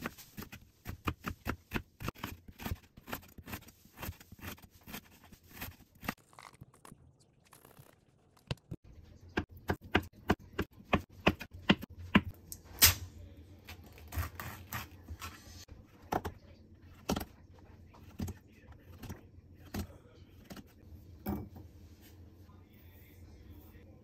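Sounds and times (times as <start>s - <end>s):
knife chopping on cutting board: 9.4s - 12.3s.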